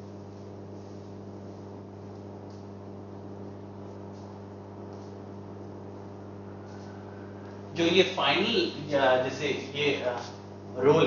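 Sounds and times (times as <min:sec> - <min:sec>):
low electrical hum: 0:00.0 - 0:11.0
soft high-pitched rustles: 0:06.0 - 0:07.4.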